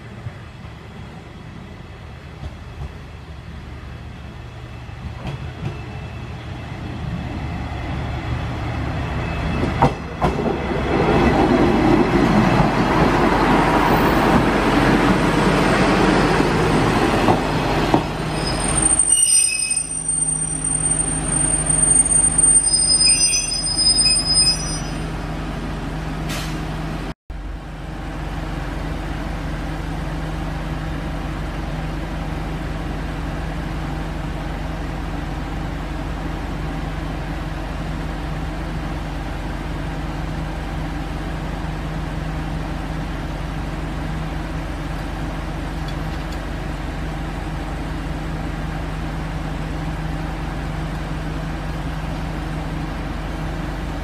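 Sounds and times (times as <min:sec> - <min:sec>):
wheels and brakes squealing: 0:09.0 - 0:09.9, 0:18.2 - 0:25.4.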